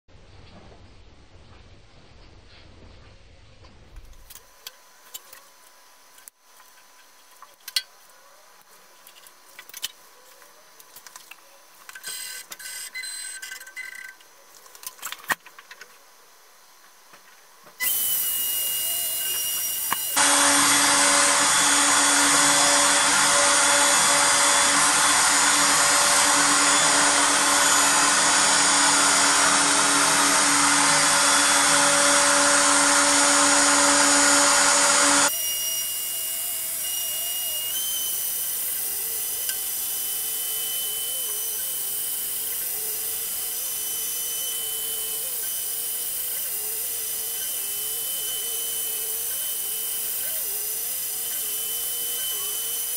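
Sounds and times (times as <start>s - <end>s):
power tool whine: 11.9s - 14.1s, 17.8s - 52.9s.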